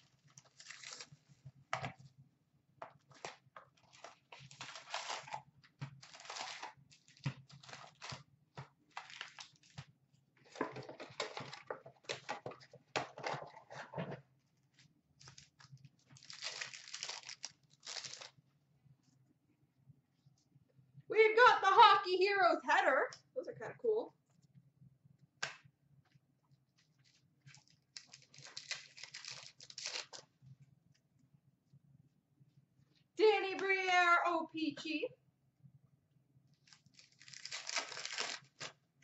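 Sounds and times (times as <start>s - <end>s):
wrappers tearing and crinkling: 0.1s - 1.3s, 3.2s - 8.2s, 8.9s - 9.8s, 15.2s - 18.4s, 27.5s - 30.2s, 36.7s - 38.8s.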